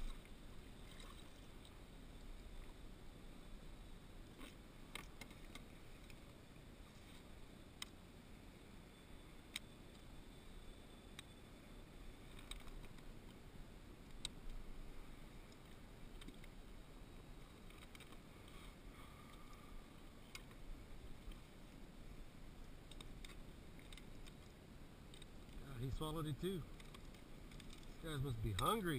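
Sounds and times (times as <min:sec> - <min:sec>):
fishing gear clicks and knocks: 0:22.8 - 0:25.6, 0:26.7 - 0:28.8.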